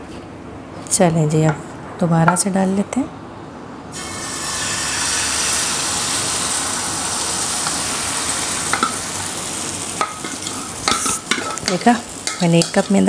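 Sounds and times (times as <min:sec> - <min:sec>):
batter sizzling in pan: 0:03.9 - 0:13.0.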